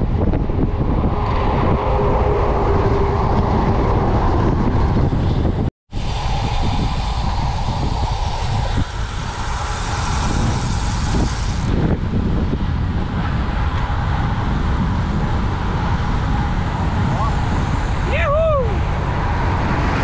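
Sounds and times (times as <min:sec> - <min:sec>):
bicycle road noise: 0:00.0 - 0:20.0
wind rush: 0:00.0 - 0:20.0.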